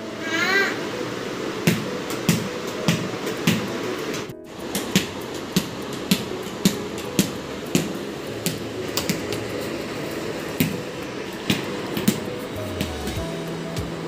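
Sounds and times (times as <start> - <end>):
ball bouncing on tiled floor: 1.7 - 3.7, 4.6 - 9.5, 10.6 - 10.9, 11.5 - 13.2.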